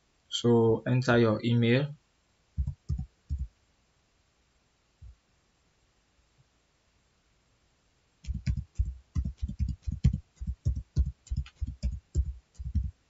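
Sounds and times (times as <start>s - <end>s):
computer keyboard typing: 2.6s - 3.5s, 8.2s - 13.0s.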